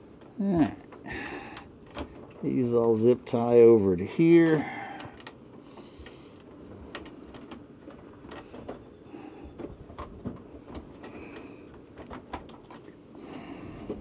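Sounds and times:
rustle of wire and plastic: 0.0s - 14.0s.

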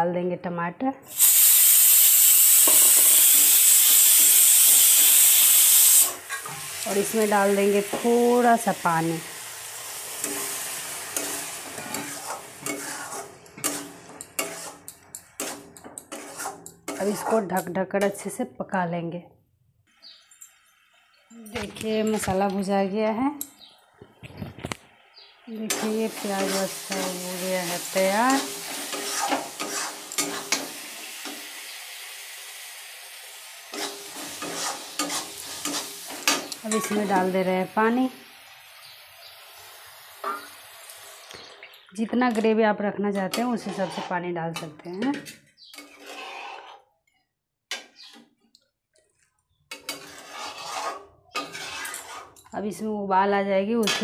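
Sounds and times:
masala sizzling in a metal pan: 1.1s - 18.4s, 20.0s - 23.8s, 24.4s - 42.6s, 49.7s - 52.8s, 53.7s - 54.0s
metal spatula scraping pan: 10.0s - 18.2s, 25.7s - 31.5s, 33.7s - 37.4s, 43.2s - 46.9s, 49.7s - 52.5s.

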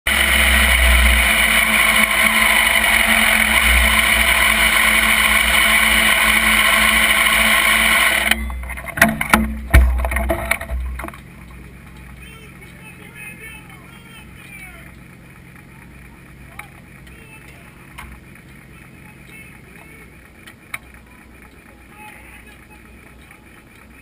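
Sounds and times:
motorcycle engine: 0.0s - 24.0s
road noise: 0.0s - 24.0s
knocks and a thump: 8.4s - 11.2s.

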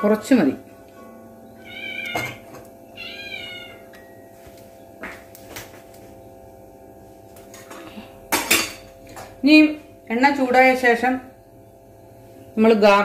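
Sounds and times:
cat meowing: 1.6s - 2.4s, 3.0s - 3.9s.

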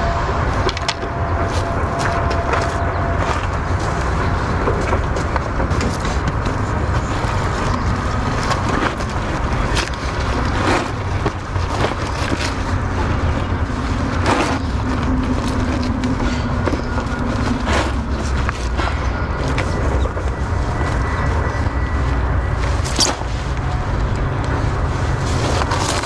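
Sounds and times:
steady low rumble: 0.0s - 26.0s
plastic bag crinkling: 6.8s - 23.6s.

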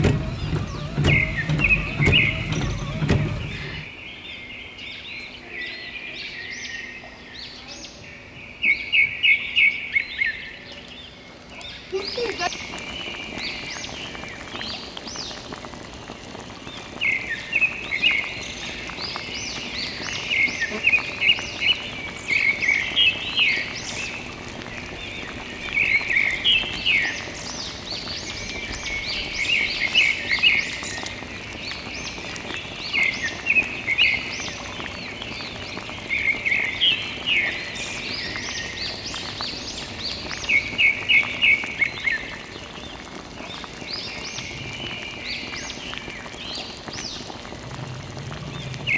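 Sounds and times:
steady hiss: 0.0s - 4.1s
water trickling into a puddle: 0.0s - 5.3s, 8.9s - 48.9s.

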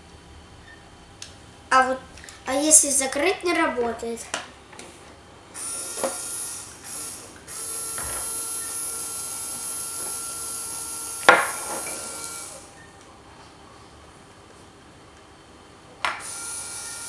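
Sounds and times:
electric toy motor whirring: 5.6s - 12.7s, 16.2s - 17.0s.

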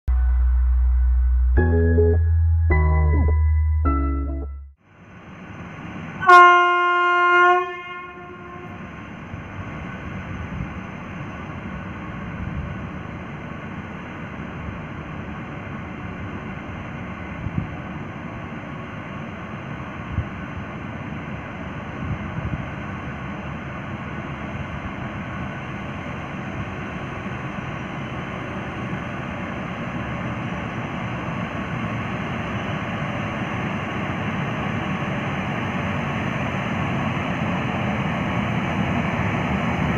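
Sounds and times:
train rumbling: 0.0s - 39.9s
locomotive horn blast: 6.2s - 8.8s.

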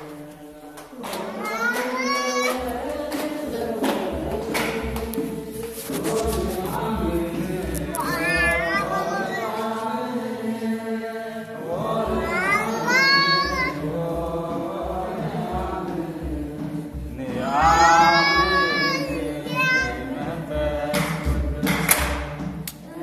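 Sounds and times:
congregation chanting in unison: 0.0s - 23.0s.

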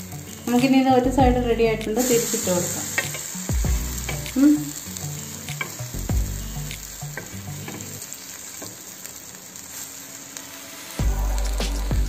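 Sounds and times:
dull low thumps: 1.1s - 2.0s, 3.5s - 4.3s, 6.0s - 6.8s
bread sizzling in butter: 1.8s - 12.0s.

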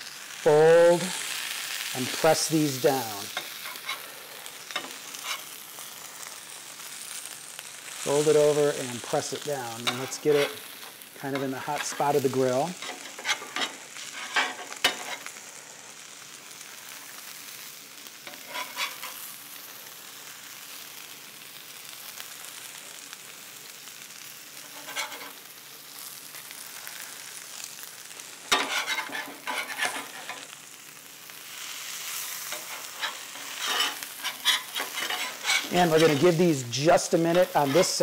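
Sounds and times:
food sizzling on griddle: 0.0s - 38.0s
metal spatula scraping griddle: 0.5s - 6.3s, 8.1s - 15.4s, 18.2s - 19.3s, 24.6s - 25.4s, 28.0s - 30.6s, 31.6s - 38.0s.

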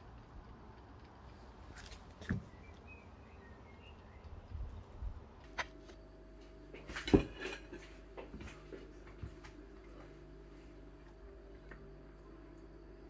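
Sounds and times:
knife and plate knocks and clinks: 6.8s - 8.4s.

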